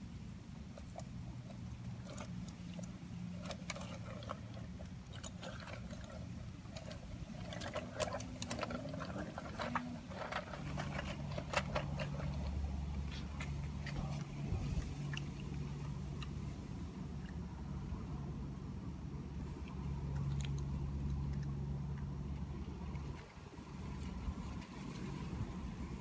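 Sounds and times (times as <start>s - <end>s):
low steady hum: 0.0s - 26.0s
toy truck clicks and scrapes: 0.8s - 14.3s.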